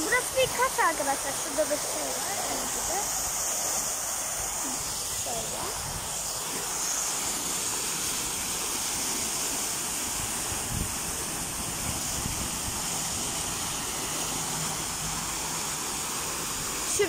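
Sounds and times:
water jet splashing into pool: 0.0s - 17.0s
water spilling over rocks: 0.0s - 17.0s.

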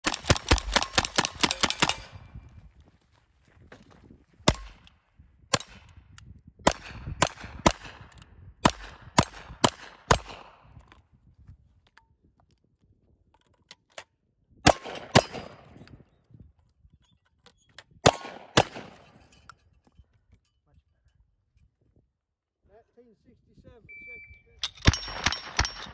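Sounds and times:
quick gunshots: 0.0s - 2.2s, 18.0s - 19.1s
shotgun shots: 0.0s - 2.3s, 4.4s - 4.8s, 6.6s - 10.6s, 14.6s - 15.8s, 18.0s - 19.2s, 24.7s - 25.9s.

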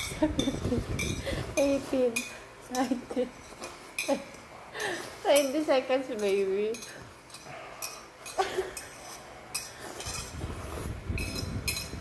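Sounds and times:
glass clinks: 11.2s - 12.0s.

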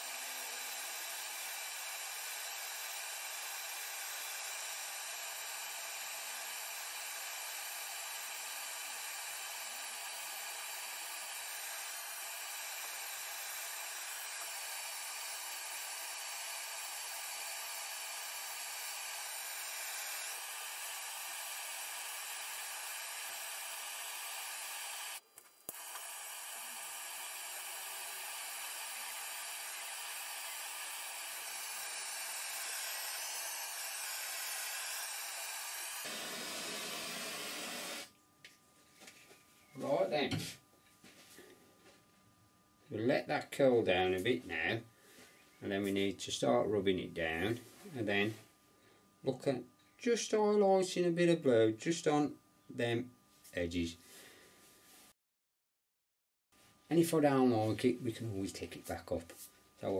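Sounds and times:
blow torch hissing: 0.0s - 38.2s
torch click: 0.0s - 38.2s.

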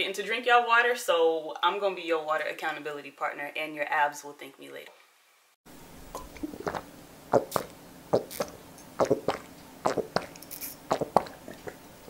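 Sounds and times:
person gulping water: 6.2s - 11.9s.

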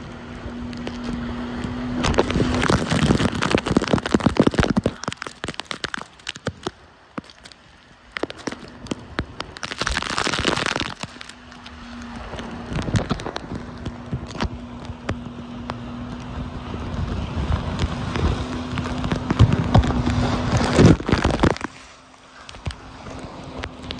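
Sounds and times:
jet ski engine droning: 0.0s - 23.9s
water splashing on microphone: 0.0s - 23.9s.

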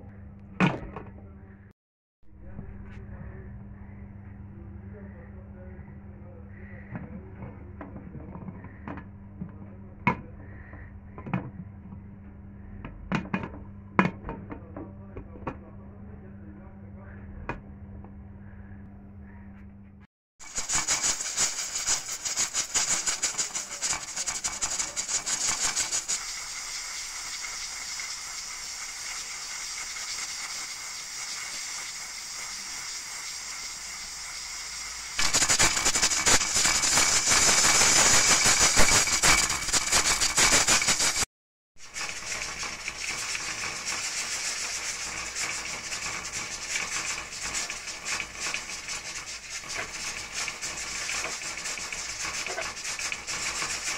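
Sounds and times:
pressure cooker venting steam: 20.4s - 53.9s.

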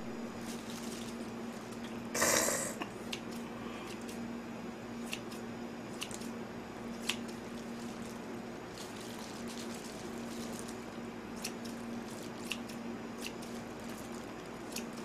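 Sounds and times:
steady low hum: 0.0s - 15.0s
scissors snipping meat: 5.1s - 6.3s, 7.0s - 7.4s, 11.4s - 15.0s.

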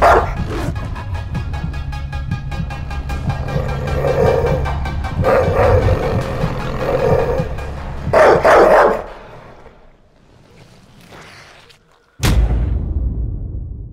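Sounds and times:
dog barking: 0.0s - 0.7s, 8.1s - 9.2s
dog growling: 3.1s - 9.8s.

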